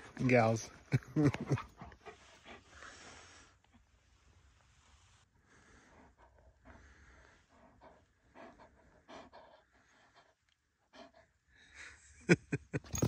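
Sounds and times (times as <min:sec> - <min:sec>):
dog panting: 0:01.3 - 0:03.4, 0:05.7 - 0:11.4.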